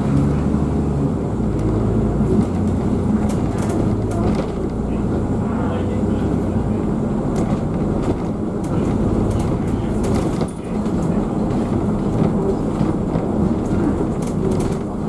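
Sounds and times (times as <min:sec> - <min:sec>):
bus engine and road rumble: 0:00.0 - 0:15.0
bodywork rattles and clicks: 0:01.5 - 0:04.8, 0:07.3 - 0:15.0.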